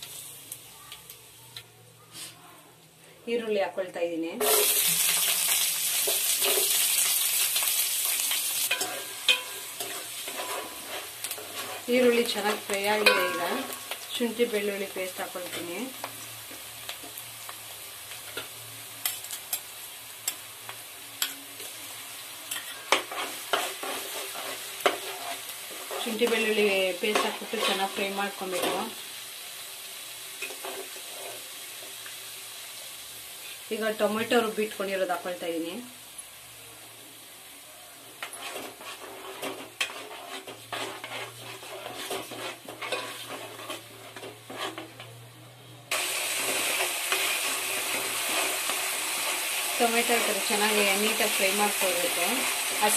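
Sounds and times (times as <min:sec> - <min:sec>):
onions sizzling in hot oil: 0:00.0 - 0:52.9
spoon scraping a pan: 0:04.4 - 0:16.2, 0:22.5 - 0:29.0, 0:30.4 - 0:32.0, 0:38.2 - 0:45.2, 0:45.9 - 0:52.9.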